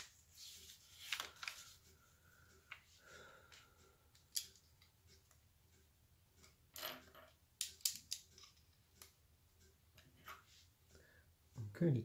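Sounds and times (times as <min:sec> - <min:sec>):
plastic bricks clicking together: 0:06.4 - 0:09.1.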